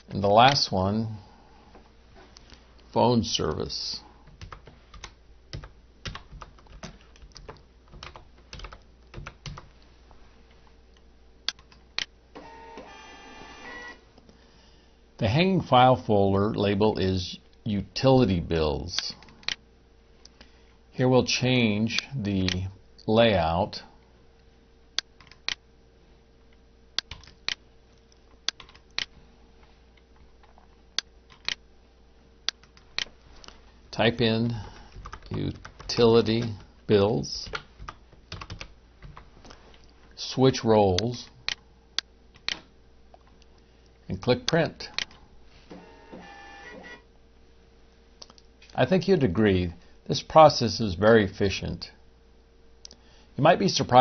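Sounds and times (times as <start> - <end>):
faint steady hum: 0.0 - 54.0
computer keyboard typing: 4.3 - 9.7, 27.0 - 27.6, 28.4 - 29.1, 34.7 - 36.7, 37.4 - 39.2.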